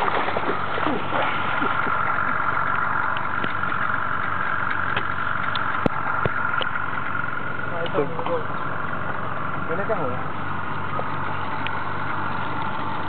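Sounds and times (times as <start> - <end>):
small boat motor idling: 0.0 - 13.0.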